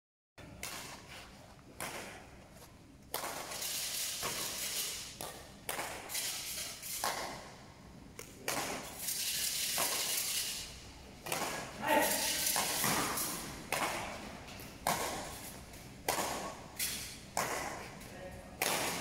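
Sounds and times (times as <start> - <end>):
rackets hitting shuttlecock: 0.4 - 1.0, 1.7 - 2.4, 3.1 - 7.6, 8.2 - 9.0, 9.7 - 10.2, 11.2 - 19.0.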